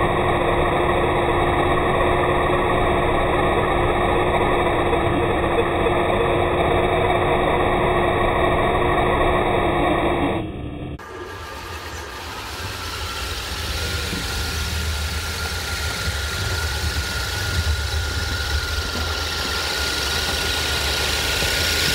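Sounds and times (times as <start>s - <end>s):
simulated diesel engine idling: 11.0s - 21.9s.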